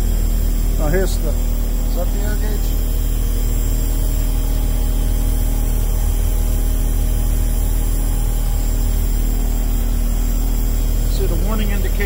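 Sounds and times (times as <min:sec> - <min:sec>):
dashboard warning buzzer droning: 0:00.0 - 0:12.0
diesel engine idling: 0:00.0 - 0:12.0.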